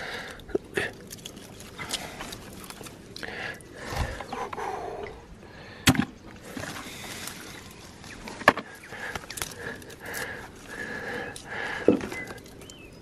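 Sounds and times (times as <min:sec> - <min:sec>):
mud squelching and sloshing: 0:00.9 - 0:04.2, 0:06.4 - 0:12.8.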